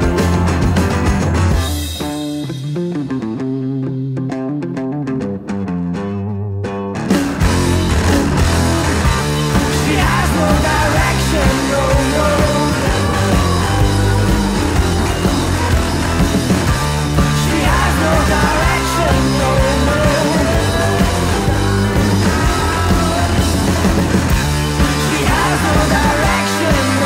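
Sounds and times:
drum kit: 0.0s - 4.1s, 7.0s - 27.0s
electric guitar: 0.0s - 27.0s
person singing into a microphone: 9.6s - 14.6s, 17.2s - 23.6s, 24.9s - 27.0s.

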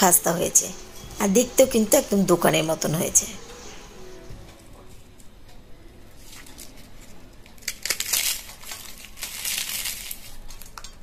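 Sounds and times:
pastry cracking and crumbling: 6.3s - 11.0s.

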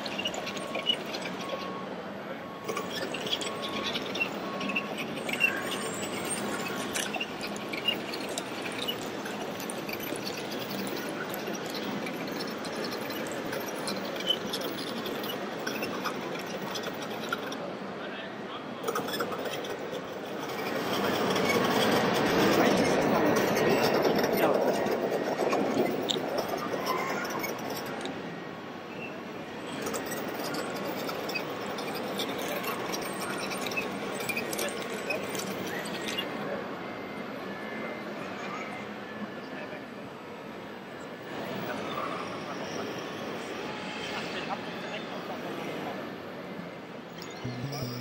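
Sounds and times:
crowd hubbub: 0.0s - 48.0s
large hall background noise: 0.0s - 48.0s
high squeak: 2.6s - 17.5s.

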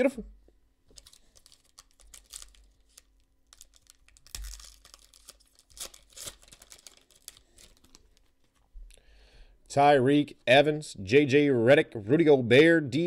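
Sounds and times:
shiny wrapper crinkling and tearing: 0.9s - 8.7s.

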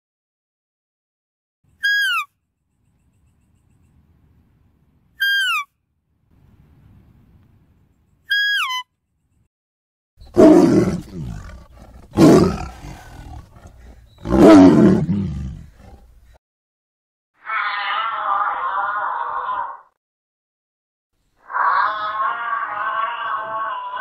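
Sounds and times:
tiger roaring: 10.2s - 16.2s.

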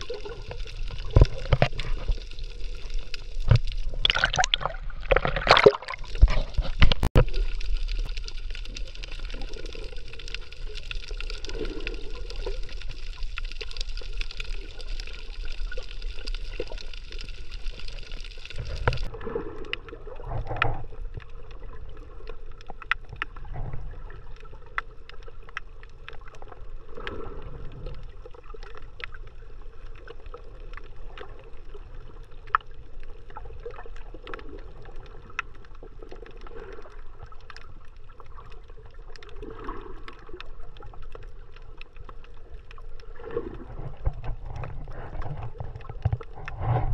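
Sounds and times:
water splash: 0.0s - 13.0s
muffled underwater wash: 0.0s - 46.9s.

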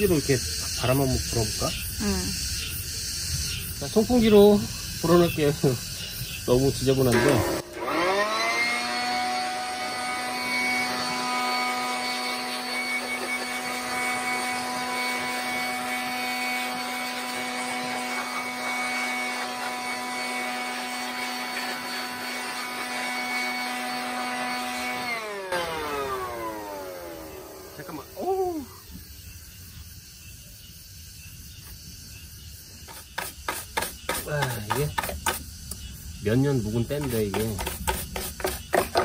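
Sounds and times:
electric blower running: 7.0s - 28.3s.

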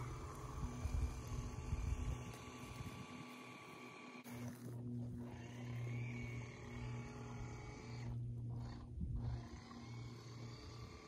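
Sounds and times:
electric motor and propeller humming: 0.0s - 11.0s.

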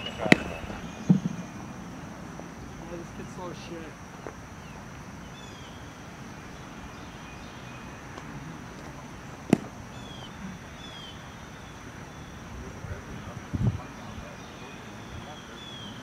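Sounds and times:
faint bird chirps: 0.0s - 2.0s, 4.2s - 16.0s
baseball smacking into mitt: 0.2s - 1.4s, 9.5s - 9.8s.

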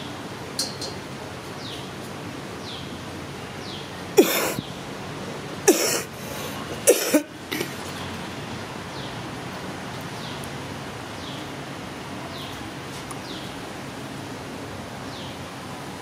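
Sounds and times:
person coughing: 4.2s - 4.6s, 5.7s - 7.8s.

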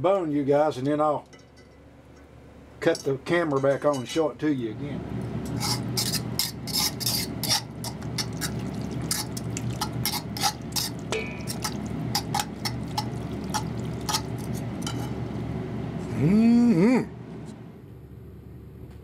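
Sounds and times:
low hum: 4.6s - 19.0s
fork stirring wet meat in pan: 5.4s - 15.2s.

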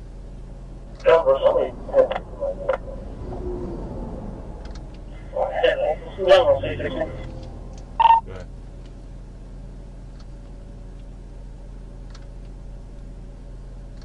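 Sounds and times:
car idling hum: 0.0s - 14.0s
loud beep: 6.3s - 8.3s.

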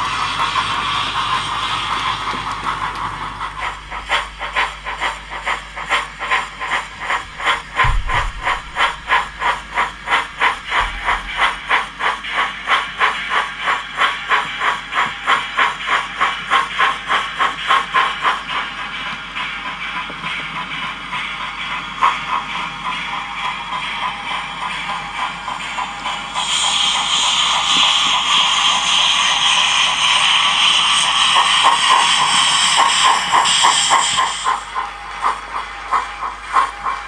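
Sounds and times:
model steam locomotive chuffing: 0.0s - 37.0s.

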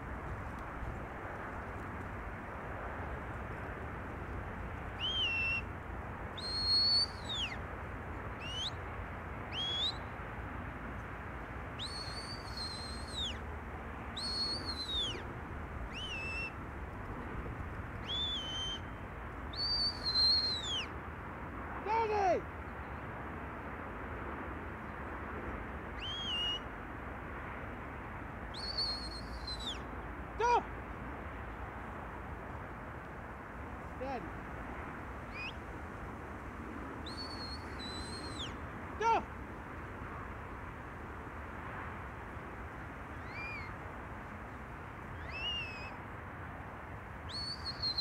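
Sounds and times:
low falling call: 4.9s - 5.7s
shepherd's whistle commands: 5.0s - 5.7s, 6.4s - 7.6s, 9.5s - 10.0s, 14.2s - 15.2s, 18.0s - 18.9s, 19.6s - 20.9s, 26.0s - 26.6s, 37.1s - 38.6s, 45.2s - 46.0s.

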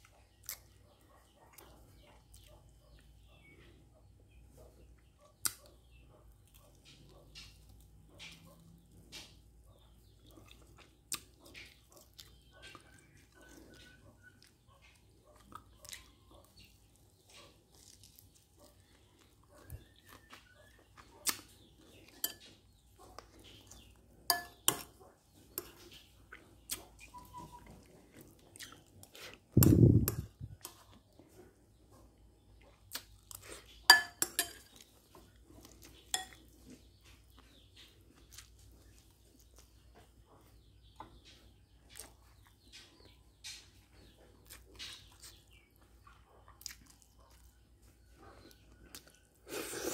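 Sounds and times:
chewing: 0.0s - 3.8s, 4.5s - 49.9s
spoon scraping ceramic bowl: 29.6s - 30.8s, 33.9s - 34.8s.

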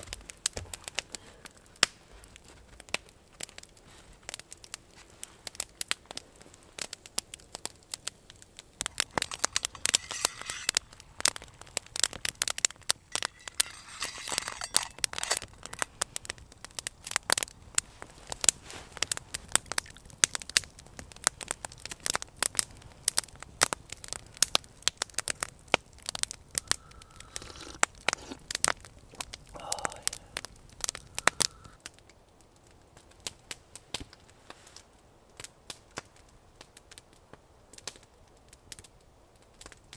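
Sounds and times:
campfire crackling and popping: 0.0s - 39.9s
fire hissing: 5.0s - 19.5s, 25.1s - 31.8s.

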